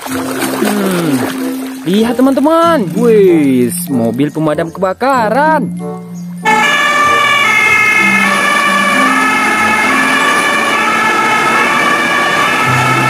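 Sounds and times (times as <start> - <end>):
fire engine two-tone siren: 6.4 - 13.0.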